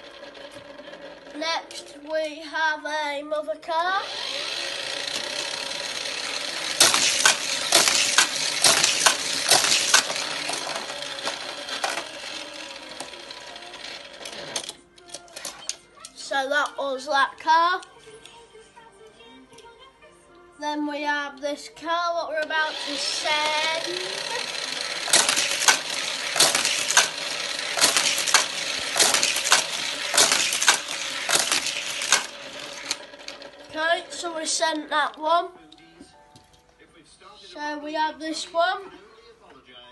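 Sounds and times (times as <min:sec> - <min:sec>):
toy car clacking on plastic track: 0:00.0 - 0:02.3, 0:04.0 - 0:15.8, 0:22.4 - 0:34.9
steady whir: 0:03.9 - 0:14.8, 0:22.4 - 0:35.2.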